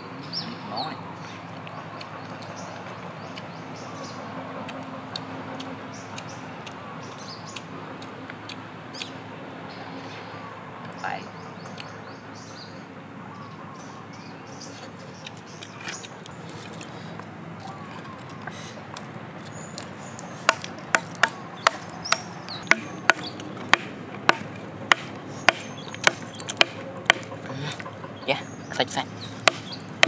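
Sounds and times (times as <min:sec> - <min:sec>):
wood chopping on snail shells: 0:19.4 - 0:27.9, 0:29.4 - 0:30.0
sharp wooden knocks: 0:20.5 - 0:28.2, 0:29.4 - 0:30.0.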